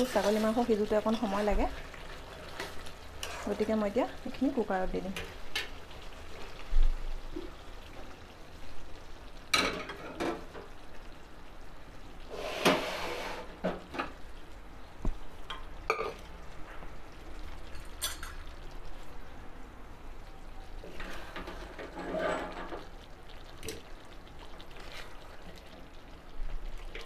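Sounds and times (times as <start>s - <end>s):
metal pots and utensils clattering: 9.5s - 10.6s, 17.7s - 18.4s, 21.0s - 22.9s.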